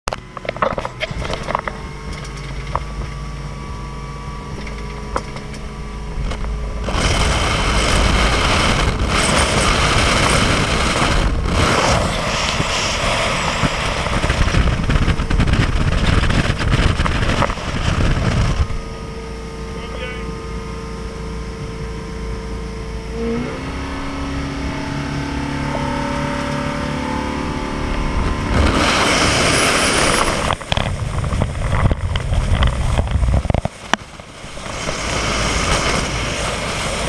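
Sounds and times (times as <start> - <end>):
motorboat engine: 0.1 - 37.0
rush of wind and water: 0.1 - 37.0.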